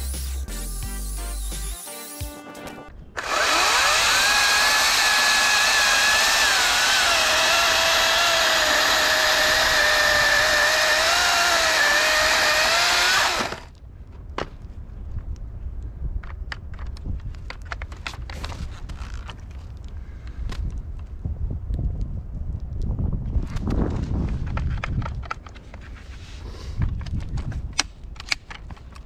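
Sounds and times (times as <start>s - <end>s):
chainsaw cutting log: 3.2s - 13.7s.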